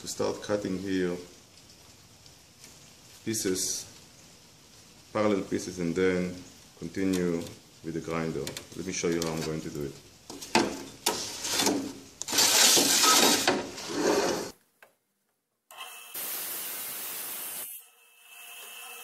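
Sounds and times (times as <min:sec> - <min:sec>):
tile scraping on metal table: 0:11.1 - 0:14.6
wet saw hissing: 0:16.1 - 0:17.8.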